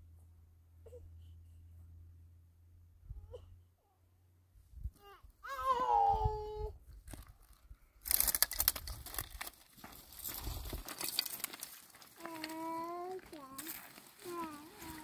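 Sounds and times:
twigs crackling and snapping: 0:07.1 - 0:15.0.

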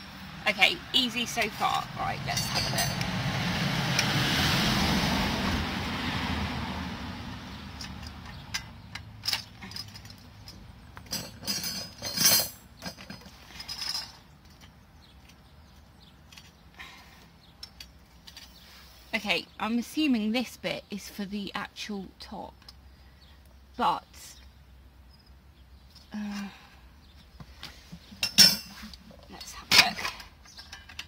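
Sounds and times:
metal pole sections clinking: 0:00.6 - 0:03.1, 0:07.7 - 0:15.5, 0:28.1 - 0:31.0
rushing noise: 0:02.7 - 0:07.5.

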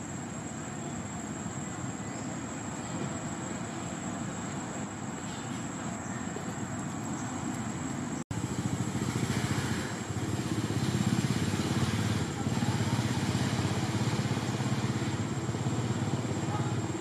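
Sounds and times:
small engine running: 0:08.3 - 0:17.0.

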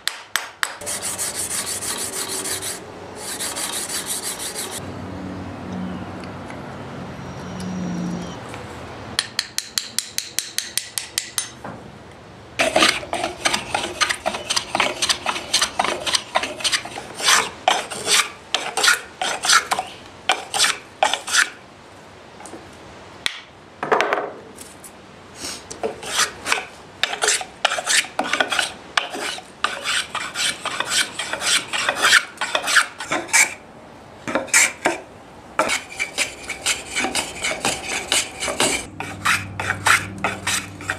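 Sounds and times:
hand rasp scraping wood: 0:00.8 - 0:04.8, 0:12.6 - 0:21.5, 0:25.9 - 0:33.6, 0:35.6 - 0:40.9.

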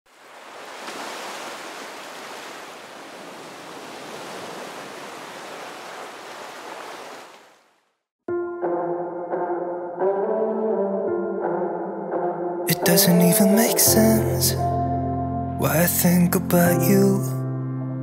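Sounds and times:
small waves washing on beach: 0:00.1 - 0:07.7
music: 0:08.2 - 0:18.0.

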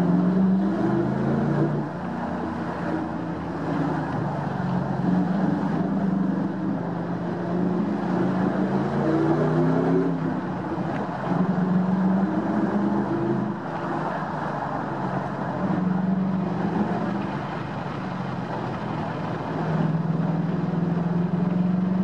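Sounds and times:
car engine from inside cabin: 0:00.0 - 0:22.0
road noise: 0:00.0 - 0:22.0.

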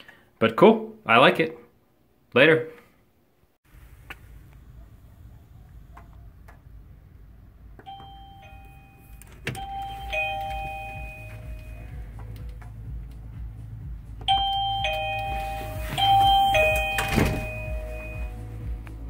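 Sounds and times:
steady low rumble: 0:03.7 - 0:19.0
electronic doorbell chime: 0:07.9 - 0:12.0, 0:14.3 - 0:18.7.

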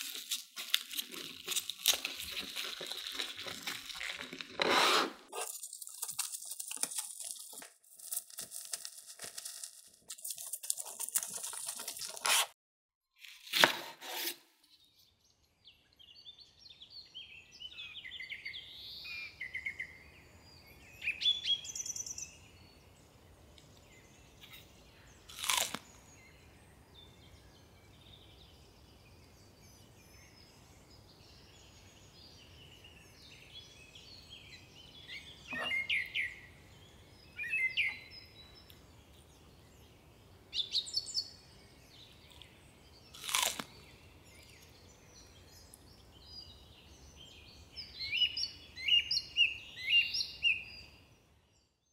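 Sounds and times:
crisp vegetable crunches: 0:00.0 - 0:04.7, 0:05.3 - 0:12.6, 0:25.3 - 0:26.0, 0:43.1 - 0:44.6
small birds chirping: 0:14.7 - 0:51.8.

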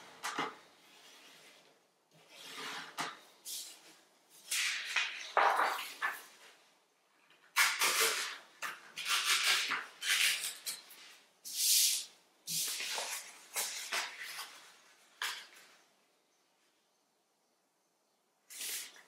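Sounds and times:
paper being folded and creased: 0:04.4 - 0:06.3, 0:07.6 - 0:11.2, 0:12.5 - 0:15.6.

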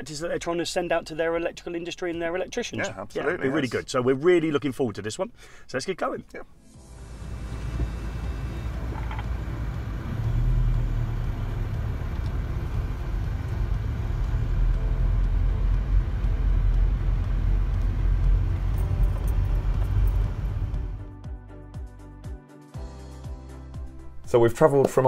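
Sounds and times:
car engine and road rumble: 0:06.8 - 0:21.1.

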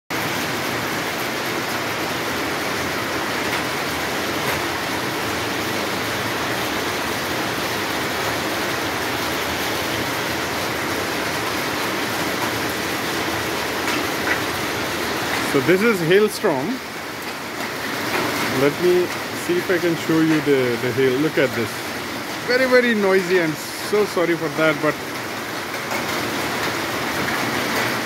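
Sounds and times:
hail and rain on roofs: 0:00.1 - 0:28.0.

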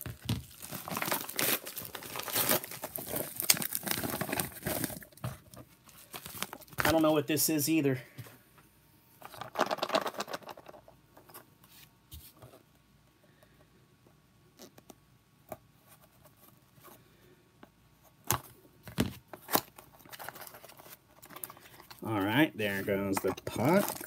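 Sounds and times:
tape tearing rip: 0:00.7 - 0:04.6.

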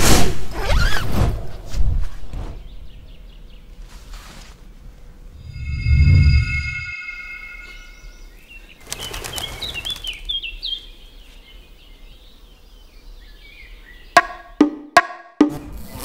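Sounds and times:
bird chirping in falling notes: 0:05.4 - 0:16.0
wings fluttering: 0:08.7 - 0:10.6.

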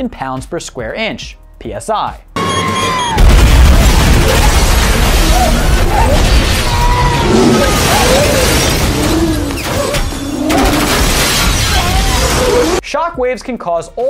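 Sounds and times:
explosion with debris: 0:03.2 - 0:12.8.

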